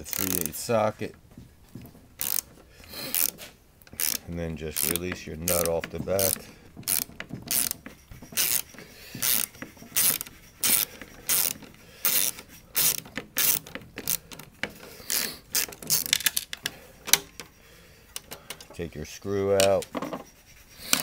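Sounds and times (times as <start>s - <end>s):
ratchet wrench clicking: 0.0s - 0.7s, 2.2s - 17.4s.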